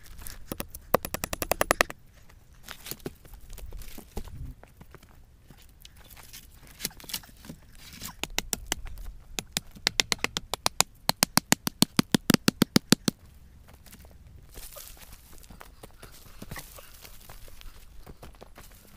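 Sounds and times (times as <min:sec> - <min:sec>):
hatchet chopping wood: 0:00.4 - 0:02.0, 0:08.0 - 0:13.2.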